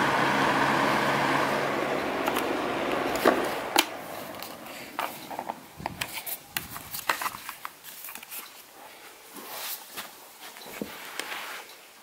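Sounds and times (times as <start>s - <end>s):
soft rustling: 4.2s - 12.0s.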